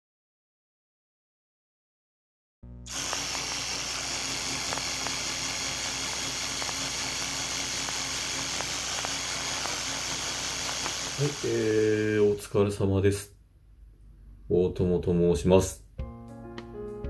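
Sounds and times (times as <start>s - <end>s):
mechanical projector whirr: 2.9s - 12.4s
strong high hiss: 2.9s - 12.5s.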